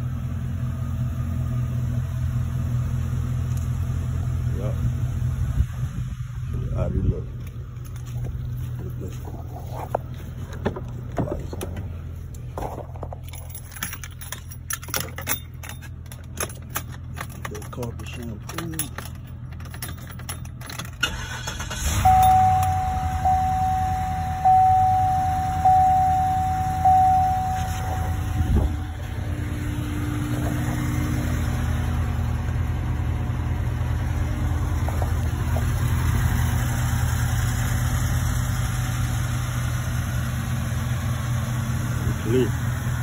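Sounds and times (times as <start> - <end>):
car engine starting and idling: 0.0 - 43.0
car warning chime dings: 21.2 - 29.4.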